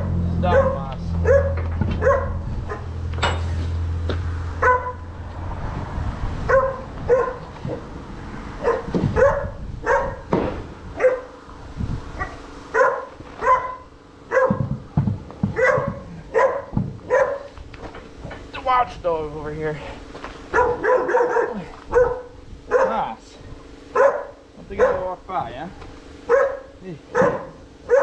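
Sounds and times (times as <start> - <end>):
dog barking: 0.4 - 2.9, 4.6 - 5.0, 6.5 - 7.8, 8.6 - 10.3, 11.0 - 11.4, 12.2 - 14.8, 15.4 - 17.6, 20.5 - 23.1, 23.9 - 25.1, 26.3 - 28.0.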